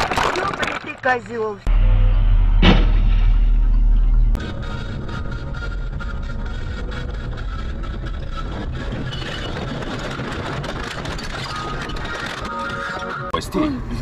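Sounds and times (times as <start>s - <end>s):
road and cabin noise: 0.0s - 14.0s
car engine running: 1.6s - 12.7s.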